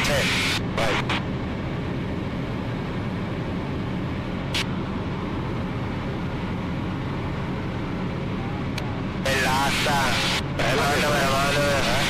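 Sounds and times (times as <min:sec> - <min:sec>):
aircraft engine and propeller droning: 0:00.0 - 0:12.0.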